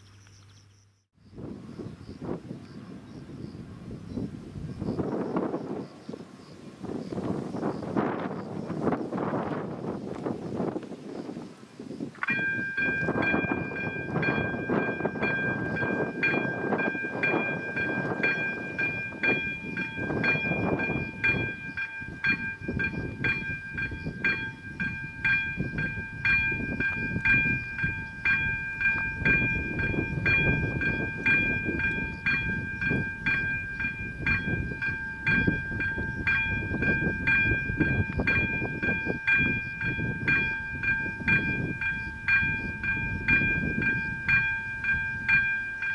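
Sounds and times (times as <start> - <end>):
level crossing warning bell ringing: 12.2 - 45.9.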